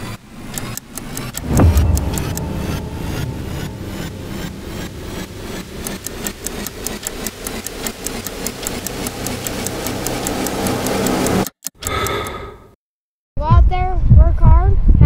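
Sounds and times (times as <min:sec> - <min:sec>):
clock-like ticking: 0:00.5 - 0:12.4
low steady drone: 0:01.4 - 0:11.5.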